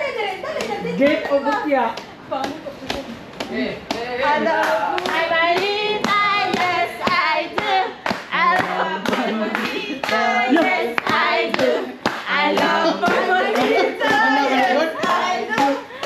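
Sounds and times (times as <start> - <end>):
hand clapping beat: 0.6 - 16.0
voices singing together: 3.9 - 16.0.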